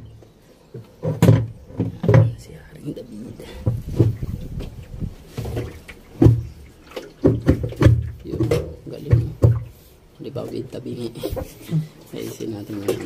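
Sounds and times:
dull thuds and knocks: 0.8 - 2.4, 3.6 - 6.6, 7.2 - 9.7.

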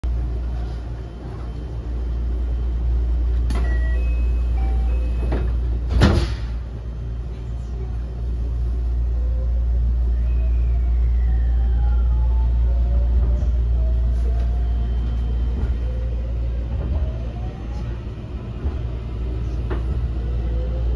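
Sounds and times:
electric train inverter whine: 0.0 - 20.9
train cabin hum: 0.0 - 20.9
train doors thudding shut: 4.8 - 6.7.

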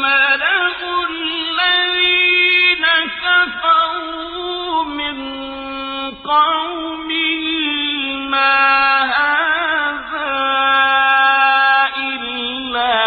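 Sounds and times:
person chanting melodic recitation: 0.0 - 13.0.

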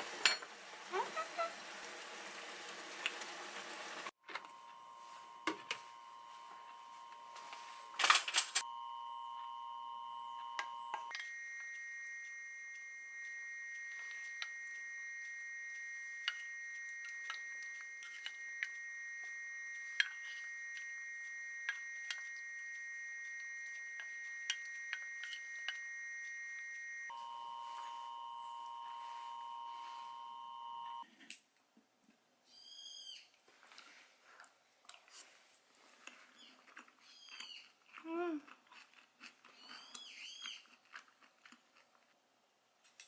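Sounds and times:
high electrical whine: 4.3 - 31.0.

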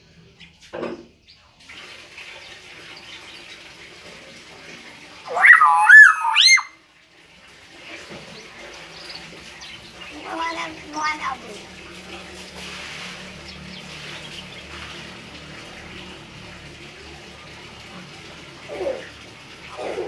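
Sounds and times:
myna bird call: 5.3 - 6.7.

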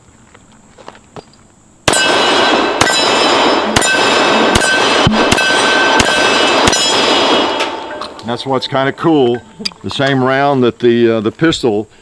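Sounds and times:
pistol shots: 1.9 - 8.3
steel targets ringing: 1.9 - 9.6.

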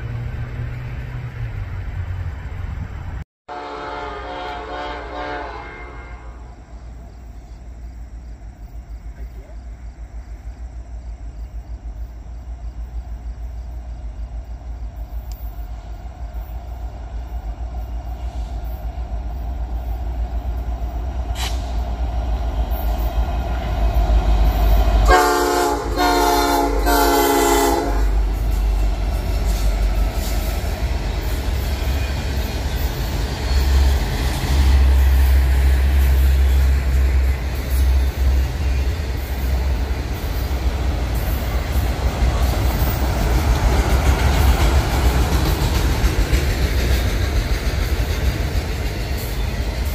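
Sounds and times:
locomotive engine and rail rumble: 0.0 - 49.9
train horn: 3.5 - 6.7, 24.6 - 29.8.

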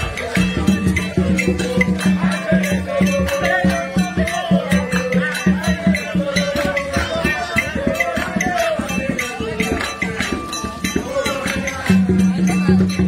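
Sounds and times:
quick percussion beat: 0.0 - 13.0.

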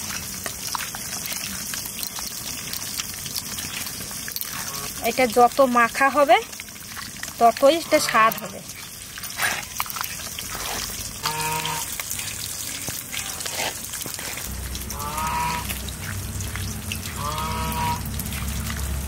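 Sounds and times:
hands kneading wet fish: 0.0 - 19.0
animal calling: 11.2 - 12.0, 14.9 - 15.8
low steady hum: 14.3 - 19.0.

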